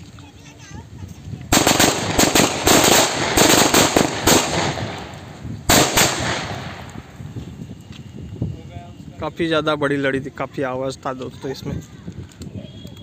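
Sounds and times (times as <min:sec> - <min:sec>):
firecrackers banging: 0:01.5 - 0:07.6.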